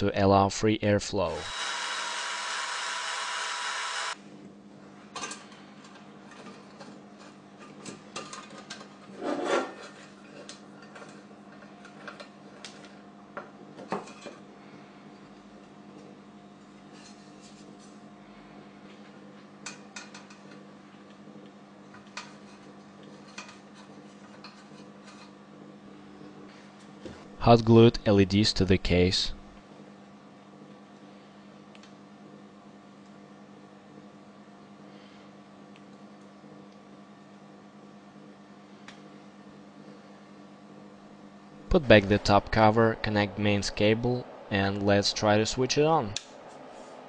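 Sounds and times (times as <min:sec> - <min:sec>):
faint steady hum: 0:00.0 - 0:47.0
electric drill: 0:01.4 - 0:04.2.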